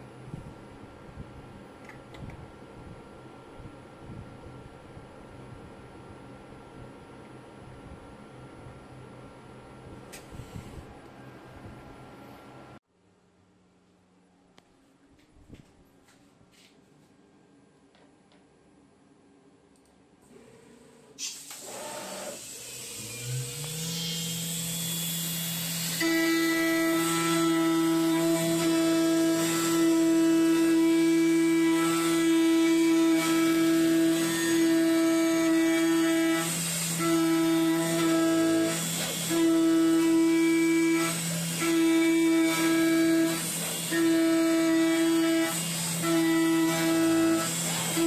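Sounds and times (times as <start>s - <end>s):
cutter hiss: 21.2s - 29.6s
spindle motor whine: 21.2s - 48.0s
milling cutter cutting metal: 21.3s - 48.0s.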